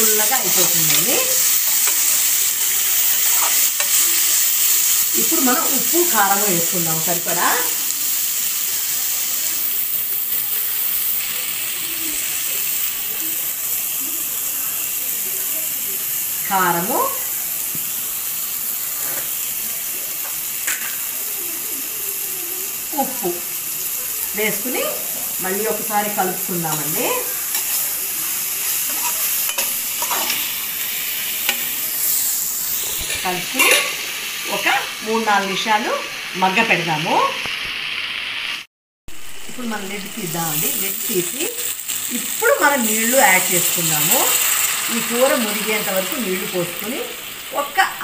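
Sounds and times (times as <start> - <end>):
vegetables sizzling in oil: 0.0 - 48.0
utensil scraping pan: 0.4 - 4.4, 28.6 - 30.5.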